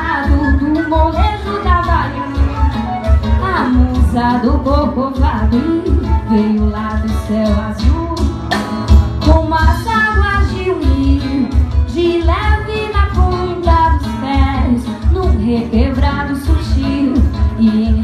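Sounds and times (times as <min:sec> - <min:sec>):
woman singing: 0:00.0 - 0:08.5, 0:09.2 - 0:18.0
samba band playing: 0:00.0 - 0:10.6.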